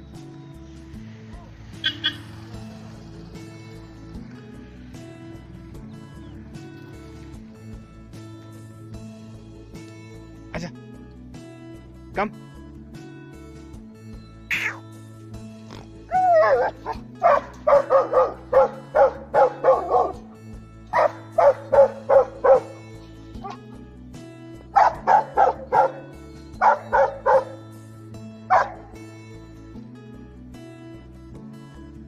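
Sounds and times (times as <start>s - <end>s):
background music with low beat: 0.0s - 32.0s
dog barking: 16.1s - 20.2s, 20.9s - 23.6s, 24.8s - 27.6s, 28.5s - 29.0s.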